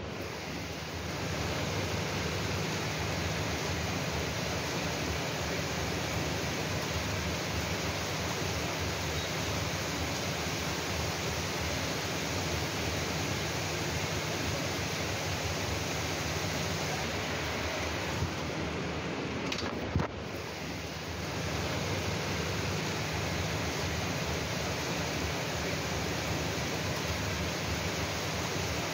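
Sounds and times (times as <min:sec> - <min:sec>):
heavy rain falling: 0:00.0 - 0:28.9.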